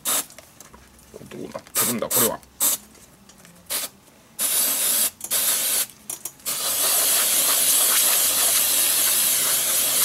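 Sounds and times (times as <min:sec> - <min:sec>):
aerosol spray hissing: 0:06.5 - 0:10.0.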